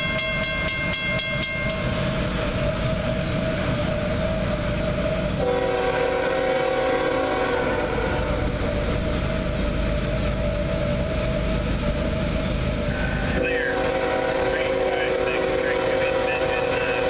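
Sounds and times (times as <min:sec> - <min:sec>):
locomotive low rumble: 0:00.0 - 0:17.0
train air horn chord: 0:05.4 - 0:08.4, 0:13.3 - 0:17.0.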